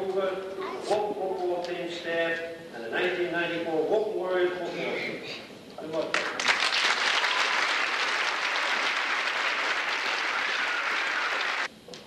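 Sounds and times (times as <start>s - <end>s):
audience applauding: 6.1s - 11.7s.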